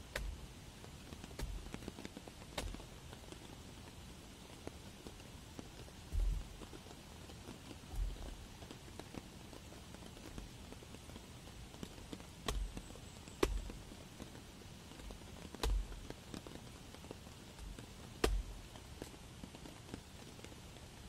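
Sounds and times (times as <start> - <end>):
rain: 0.0 - 21.0
hatchet chopping into log: 0.1 - 0.4, 2.6 - 2.8, 12.5 - 12.7, 13.4 - 13.7, 15.6 - 15.8, 18.2 - 18.4.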